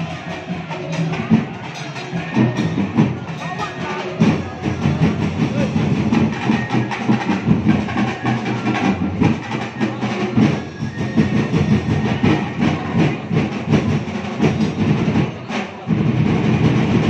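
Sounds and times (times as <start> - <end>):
percussion ensemble drumming: 0.0 - 17.0.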